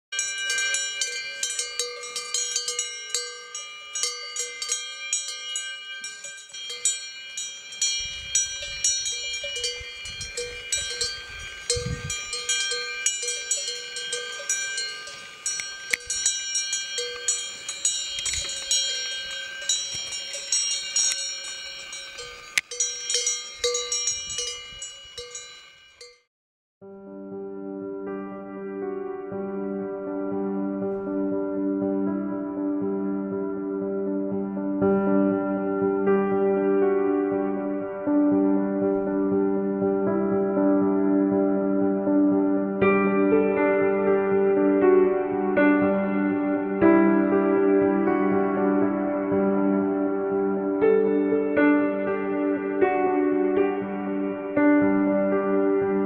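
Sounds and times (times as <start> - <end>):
cowbell clanking: 0.1 - 26.2
low rumbling: 8.0 - 22.6.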